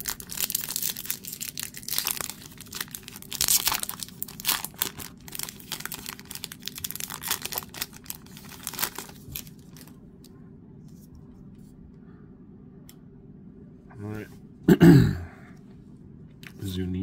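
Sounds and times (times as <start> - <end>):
foil wrapper tearing and crinkling: 0.0 - 9.9.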